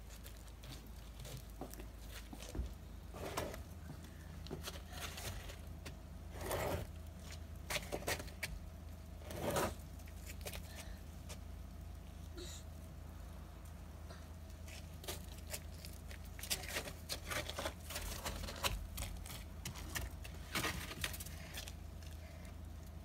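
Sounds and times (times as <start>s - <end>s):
snow scraped on wooden deck: 3.1s - 3.6s, 6.3s - 7.0s, 9.2s - 9.8s.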